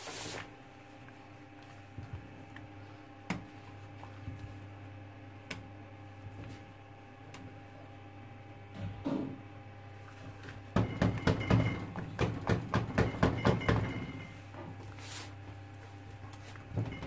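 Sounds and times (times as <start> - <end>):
soap mold knocking on steel counter: 10.7 - 14.1.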